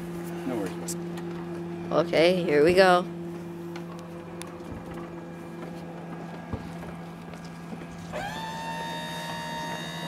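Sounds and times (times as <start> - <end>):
low steady hum: 0.0 - 10.0
electric motor whine: 8.0 - 10.0.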